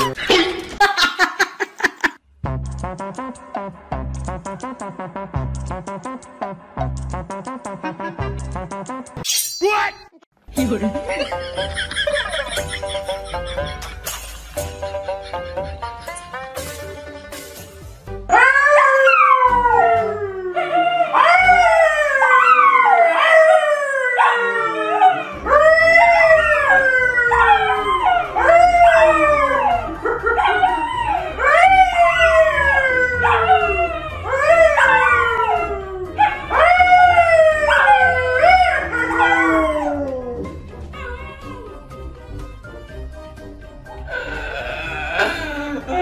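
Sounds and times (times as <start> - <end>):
animal howling: 18.3 - 42.0, 44.1 - 46.0.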